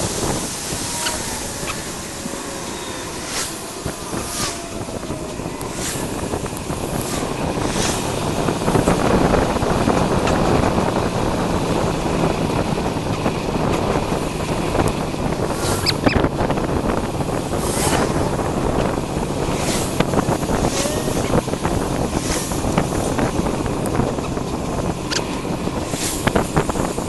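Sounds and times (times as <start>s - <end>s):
wind rushing over microphone: 0.0s - 27.0s
short swishes: 7.0s - 8.2s, 15.5s - 16.2s, 17.5s - 18.4s, 19.5s - 21.3s.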